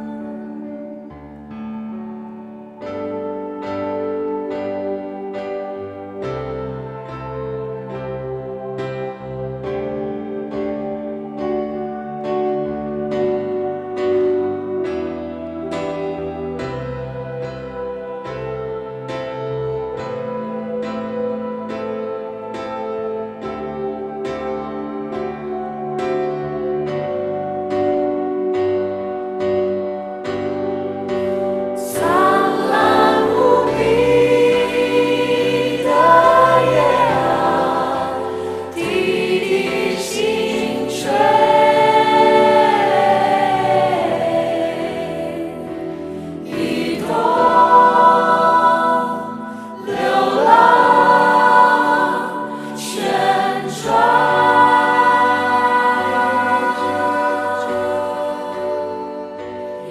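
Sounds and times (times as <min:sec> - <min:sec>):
cast singing a ballad: 0:31.8 - 0:59.9.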